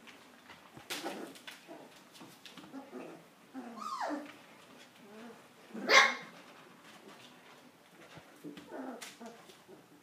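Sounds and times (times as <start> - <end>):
puppy yelp: 3.7 - 4.3, 5.8 - 6.3
high puppy bark: 5.8 - 6.3.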